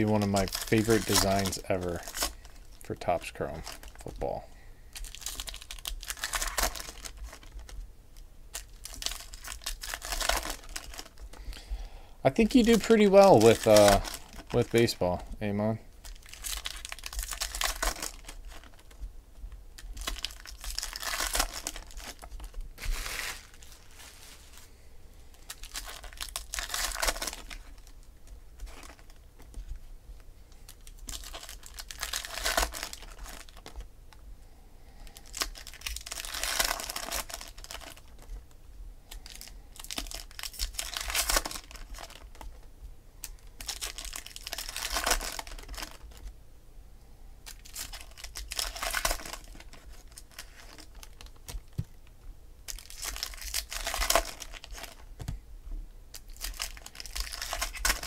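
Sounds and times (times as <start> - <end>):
foil wrappers crinkling and tearing: 0.0 - 7.8, 8.5 - 11.7, 12.3 - 19.0, 19.8 - 24.7, 25.3 - 29.8, 30.5 - 33.9, 34.9 - 42.6, 43.2 - 46.3, 47.4 - 51.9, 52.6 - 55.4, 56.1 - 58.0
cards being flipped: 21.4 - 24.6.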